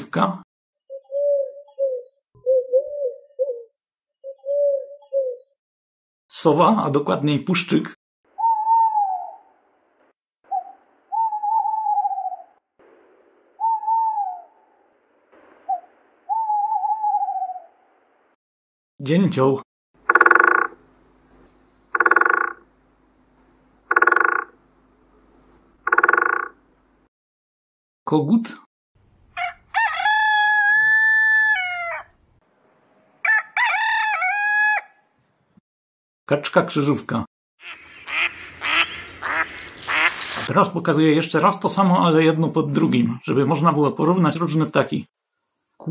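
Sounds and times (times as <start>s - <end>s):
owl hooting: 0.9s - 5.6s, 8.4s - 9.6s, 10.5s - 12.6s, 13.6s - 14.9s, 15.5s - 17.8s, 20.1s - 20.8s, 21.9s - 22.6s, 37.6s - 40.5s
rooster crowing: 29.3s - 32.2s, 33.2s - 35.2s.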